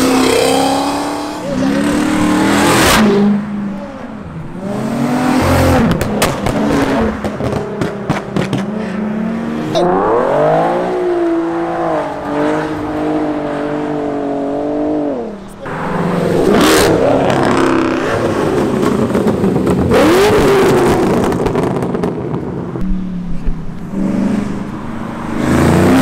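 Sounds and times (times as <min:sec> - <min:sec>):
sports car engines revving: 0:00.0 - 0:26.0.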